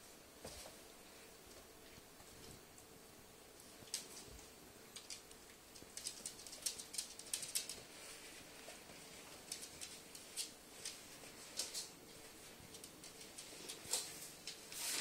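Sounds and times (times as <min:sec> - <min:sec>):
paws scratching on wooden floor: 0:05.8 - 0:15.0.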